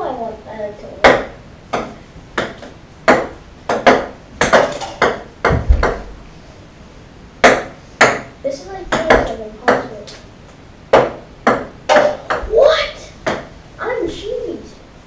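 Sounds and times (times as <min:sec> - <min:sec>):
ping-pong ball bouncing on table: 0:01.0 - 0:06.1, 0:07.4 - 0:08.3, 0:08.9 - 0:09.9, 0:10.9 - 0:12.5, 0:13.2 - 0:13.5
low thump: 0:05.5 - 0:06.1.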